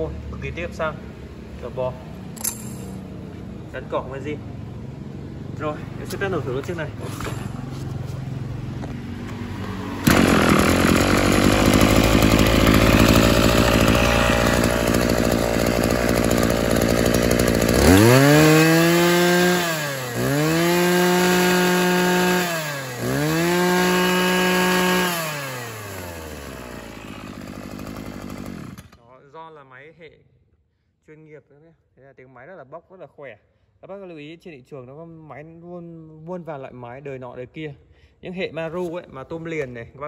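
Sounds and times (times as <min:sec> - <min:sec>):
brush cutter engine revving: 0:09.2 - 0:29.0.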